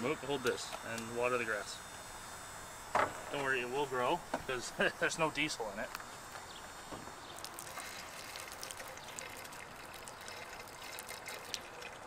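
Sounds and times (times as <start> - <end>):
water trickling onto grass: 7.2 - 12.0.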